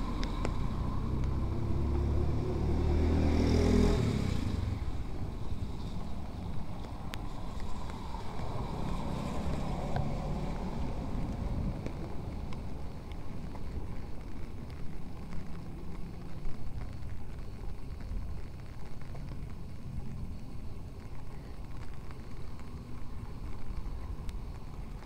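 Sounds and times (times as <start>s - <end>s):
faint ticks: 5.8s - 25.0s.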